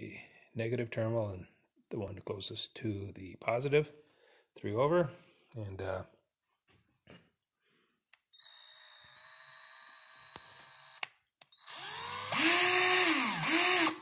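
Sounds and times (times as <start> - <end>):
drill motor spinning: 8.3 - 14.0.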